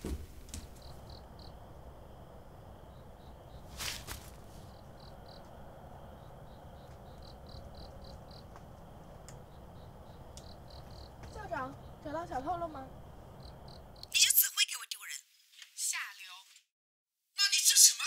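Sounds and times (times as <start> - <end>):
soft background hum: 0.0 - 14.1
crickets chirping: 0.0 - 14.2.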